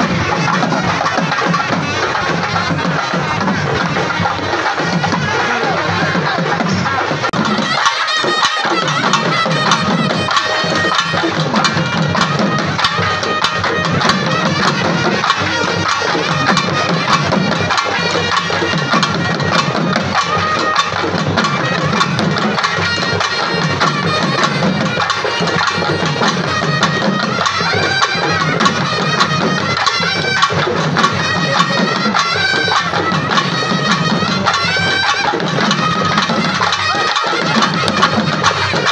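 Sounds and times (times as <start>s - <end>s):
hand drums beating fast rhythm: 0.0s - 38.9s
shrill reed pipe melody: 0.0s - 38.9s.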